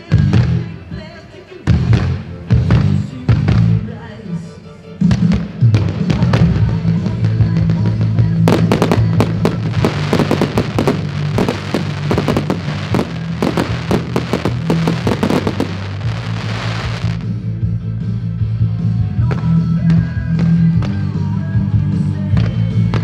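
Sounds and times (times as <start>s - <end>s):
music: 0.0s - 23.0s
fireworks bangs and crackling: 5.0s - 17.4s, 22.2s - 23.0s.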